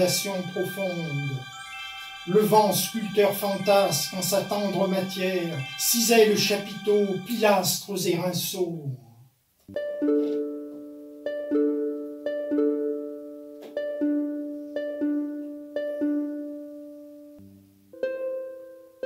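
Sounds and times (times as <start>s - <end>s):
plucked string instrument: 0.0s - 8.1s, 9.6s - 19.0s
person speaking verses: 0.0s - 9.1s.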